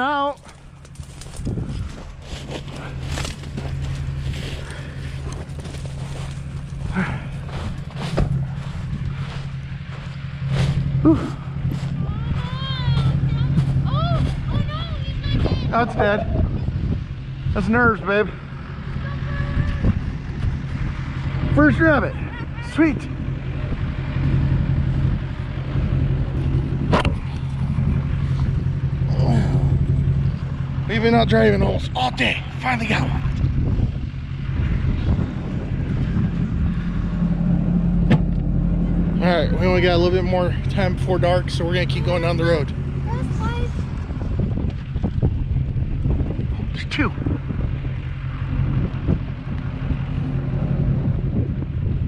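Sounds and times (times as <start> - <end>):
truck engine idling: 0.0 - 52.0
footsteps crunching through snow: 0.5 - 14.7.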